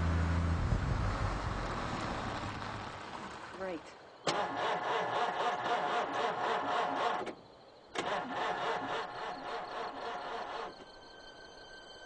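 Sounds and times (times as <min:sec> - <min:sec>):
car engine cranking on starter: 0:04.2 - 0:11.0.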